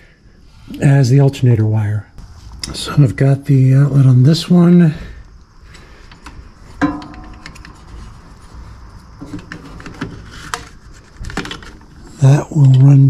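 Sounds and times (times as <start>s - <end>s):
light clicks and rustles of cable: 7.0s - 8.3s.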